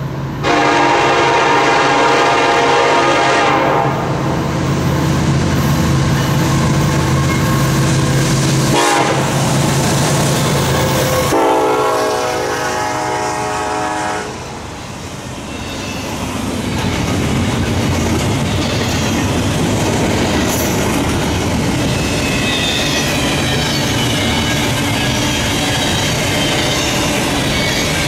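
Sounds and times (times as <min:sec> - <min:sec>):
train wheels on rails: 0:00.0 - 0:28.0
locomotive air horn: 0:00.4 - 0:04.2, 0:08.7 - 0:09.5, 0:10.8 - 0:14.6.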